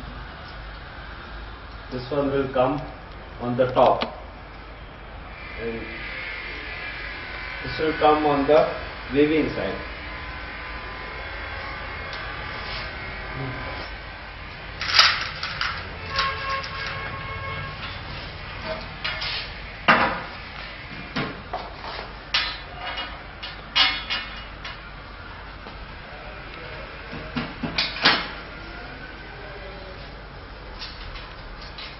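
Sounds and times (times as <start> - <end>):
steady low hum: 0.0 - 31.9.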